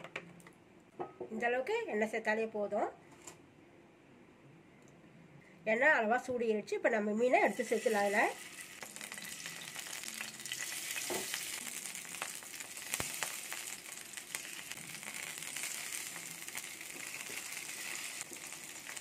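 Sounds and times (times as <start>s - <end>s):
fish sizzling in hot oil: 7.5s - 19.0s.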